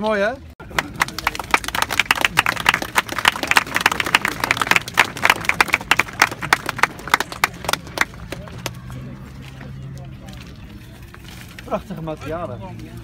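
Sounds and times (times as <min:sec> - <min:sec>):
crowd applauding: 0:00.6 - 0:09.8.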